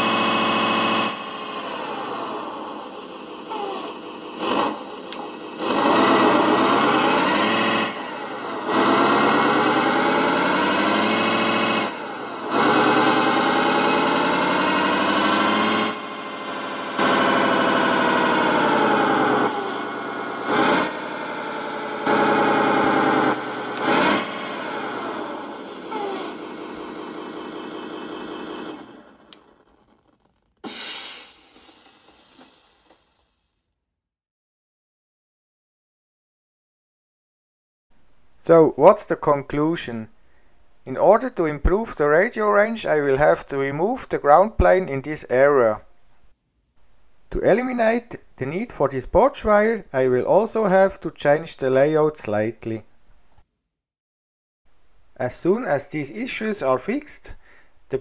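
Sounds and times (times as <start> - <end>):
simulated engine revving from speaker: 0.0 - 29.2
air brake hiss: 30.7 - 32.6.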